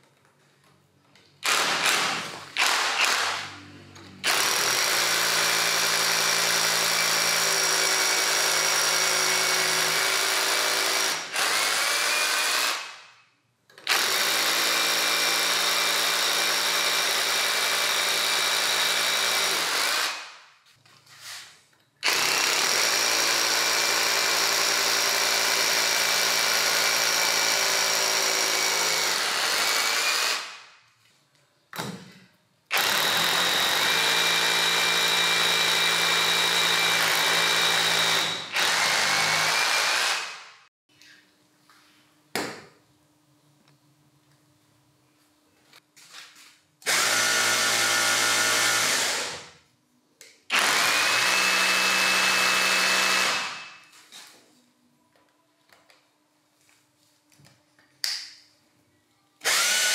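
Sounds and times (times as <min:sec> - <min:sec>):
rotary hammer drill running: 0:01.4 - 0:03.5, 0:04.2 - 0:13.0, 0:13.9 - 0:20.2, 0:22.0 - 0:30.6, 0:32.7 - 0:40.5, 0:46.8 - 0:49.5, 0:50.5 - 0:53.6, 0:59.4 - 0:59.9.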